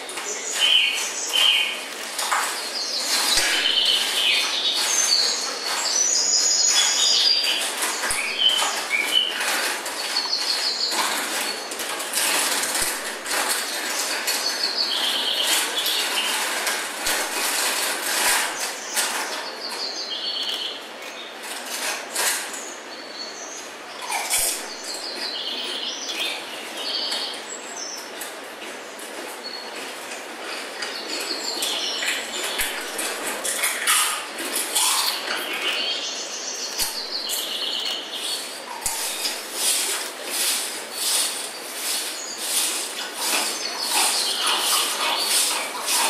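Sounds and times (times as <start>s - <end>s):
high bird-like chirping: 2.7s - 9.5s, 33.8s - 46.0s.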